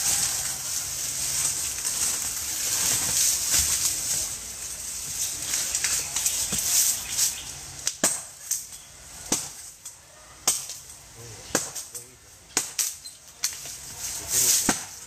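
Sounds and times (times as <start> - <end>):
steady high hiss: 0.0 - 9.9, 10.6 - 15.0
hand tool chopping stump: 11.5 - 11.9, 14.5 - 15.0.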